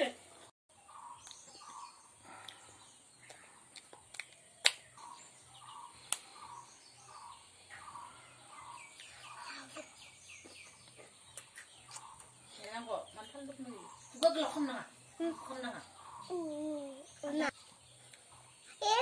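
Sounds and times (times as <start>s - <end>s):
bird calling: 0.8s - 2.7s, 4.4s - 17.2s.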